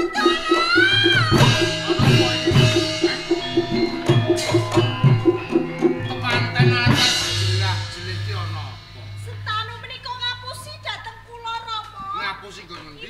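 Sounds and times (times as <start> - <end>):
gamelan ensemble playing: 0.0 - 12.3
low drum strokes: 0.5 - 10.9.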